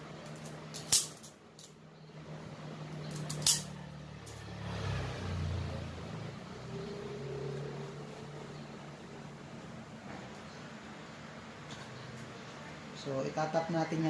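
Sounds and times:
vehicle engine rumble: 2.0 - 12.9.

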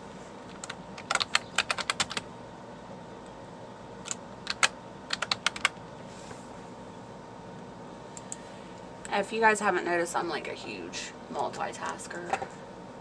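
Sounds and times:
typing on keyboard: 0.5 - 2.3, 4.0 - 5.8.

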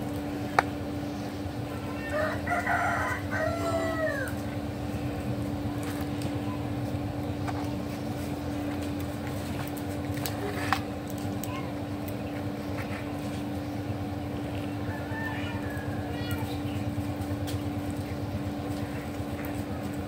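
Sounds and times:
steady low hum: 0.0 - 20.0
rooster crowing: 2.0 - 4.4, 14.8 - 16.4.

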